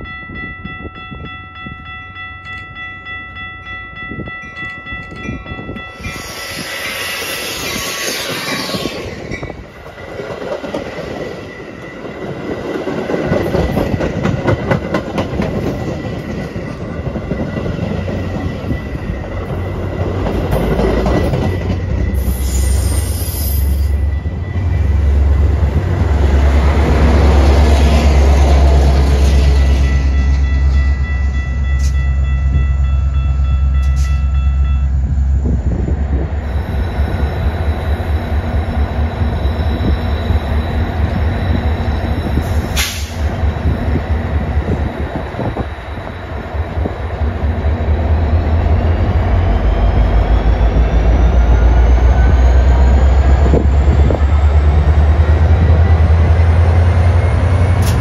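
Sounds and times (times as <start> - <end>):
diesel locomotive engine rumble: 0.0 - 58.0
thin wheel squeal: 6.0 - 9.5
train wheels clicking over rail joints: 6.0 - 22.6, 52.7 - 58.0.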